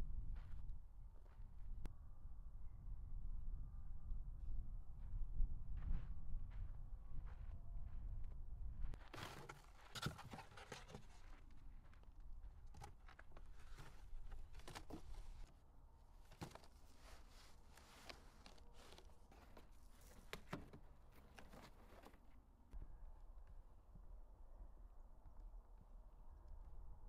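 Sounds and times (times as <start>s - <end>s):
cardboard boxes rustling and scraping: 9.0s - 11.6s, 12.6s - 15.5s, 16.2s - 22.3s.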